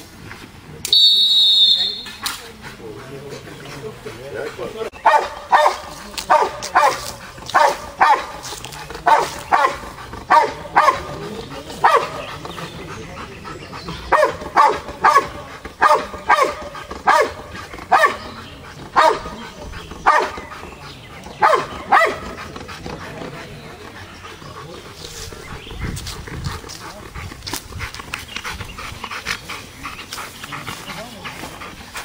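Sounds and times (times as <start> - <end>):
dog barking sharply: 5.0 - 8.3.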